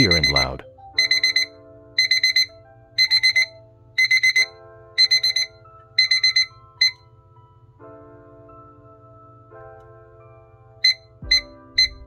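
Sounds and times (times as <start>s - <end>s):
kitchen timer alarm beeping: 0.0s - 7.0s.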